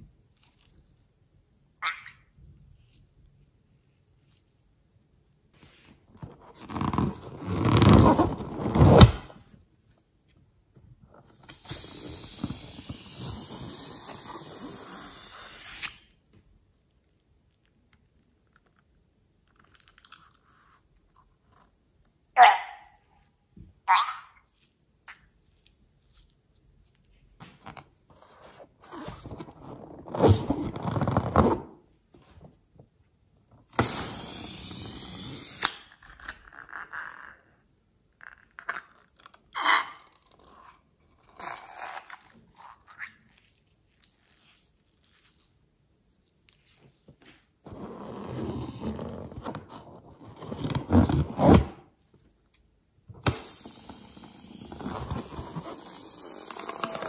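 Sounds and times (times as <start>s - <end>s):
steady hiss: 33.8s - 35.7s.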